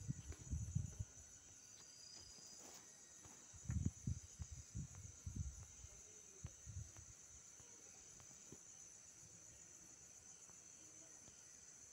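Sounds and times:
faint high-pitched hiss: 0.0 - 11.9
soft low thumps: 3.6 - 5.8.

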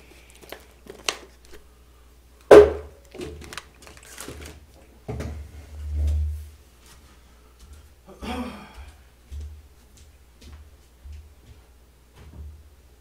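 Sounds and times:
sharp knock: 2.5 - 3.0.

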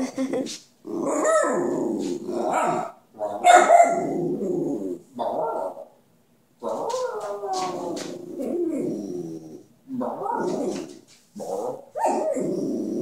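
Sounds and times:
puppy howling: 6.6 - 10.9.

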